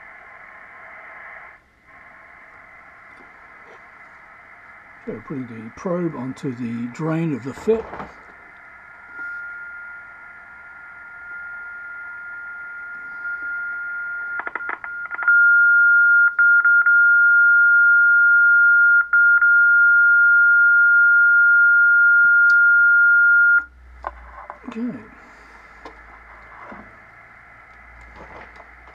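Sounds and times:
steady beat tone from radio speaker: 0.0s - 15.4s, 23.6s - 28.9s
receiver hiss: 0.0s - 15.5s, 23.4s - 28.9s.

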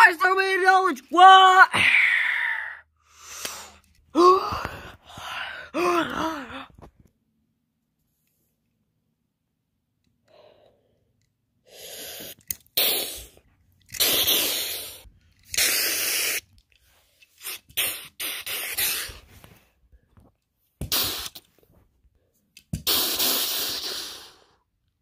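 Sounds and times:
hissing breath bursts: 11.6s - 13.4s, 14.0s - 16.5s, 17.4s - 19.3s, 22.8s - 24.7s.

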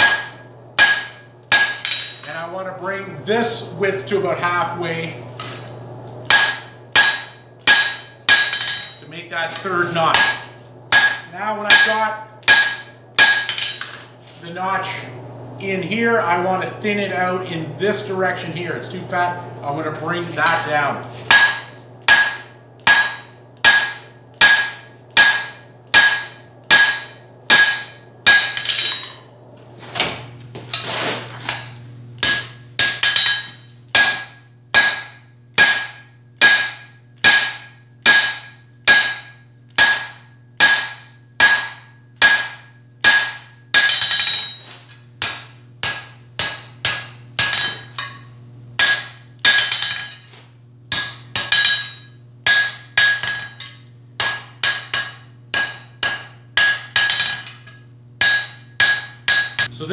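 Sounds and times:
hammer ringing on anvil: 0.0s - 2.4s, 6.3s - 9.1s, 10.1s - 14.0s, 21.3s - 29.2s, 31.5s - 50.3s, 50.9s - 59.8s.

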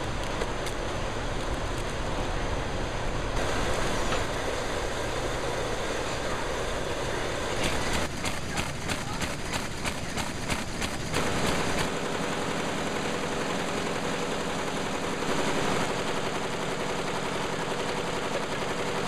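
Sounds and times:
factory machinery noise: 0.0s - 19.0s
roller conveyor rattling: 0.0s - 19.0s
paper machine fast clicking: 7.5s - 19.0s.

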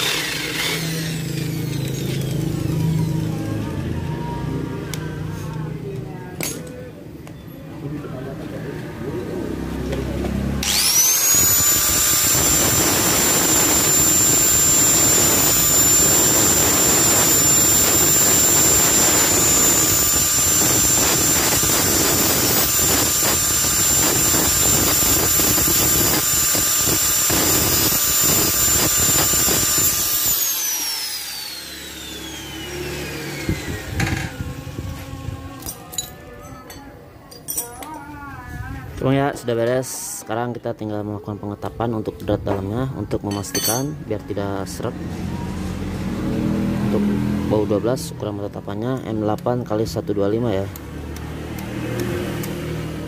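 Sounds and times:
angle grinder grinding steel: 0.0s - 3.7s, 10.6s - 36.8s, 43.3s - 44.0s.

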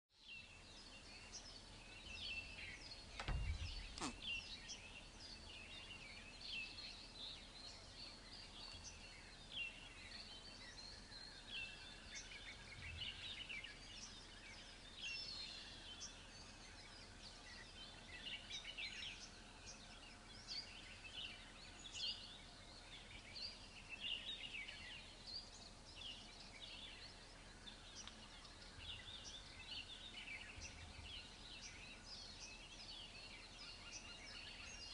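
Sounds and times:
small birds chirping: 0.1s - 34.9s
low thump: 3.1s - 4.2s
click: 28.0s - 28.2s.

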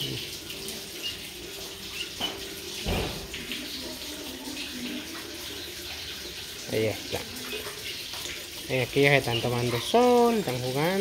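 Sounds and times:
chicks peeping: 5.0s - 10.5s.

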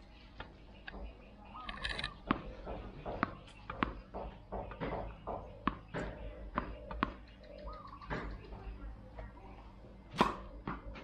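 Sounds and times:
tennis ball bouncing on concrete: 2.2s - 8.6s, 10.2s - 11.0s.

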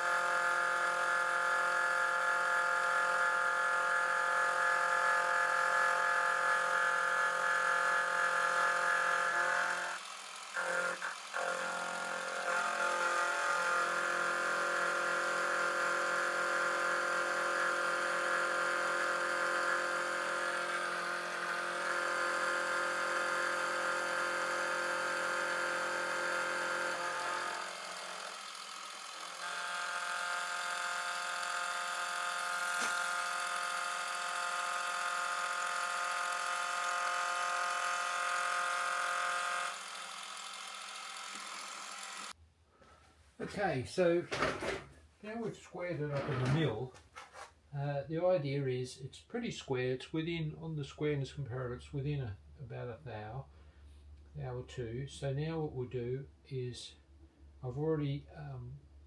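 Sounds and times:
milling machine whine: 0.0s - 42.4s.

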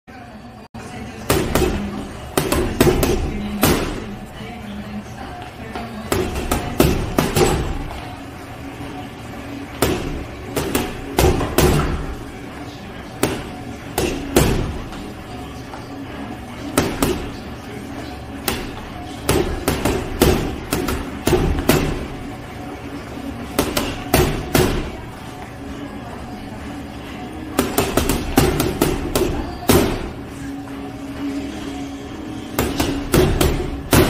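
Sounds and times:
boxing gloves punching heavy bag: 1.3s - 4.1s, 6.2s - 7.9s, 9.8s - 12.1s, 13.2s - 14.9s, 18.4s - 22.2s, 23.6s - 25.0s, 32.5s - 34.0s.

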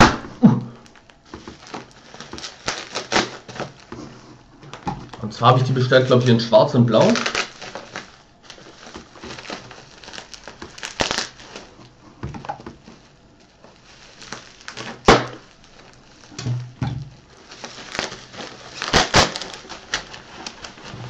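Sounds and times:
bubble wrap crinkling: 0.0s - 21.0s.

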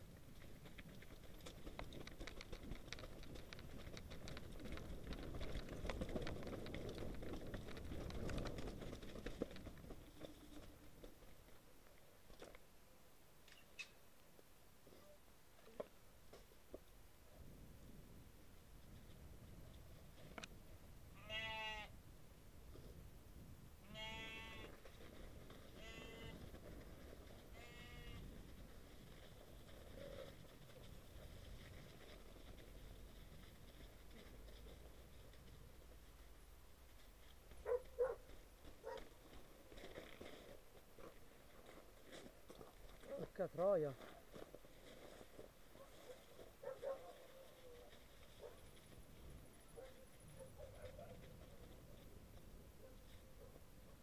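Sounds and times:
bike clicks and rattles: 0.4s - 11.1s
livestock bleating: 21.2s - 21.9s, 23.8s - 24.8s, 25.8s - 26.4s, 27.5s - 28.2s.

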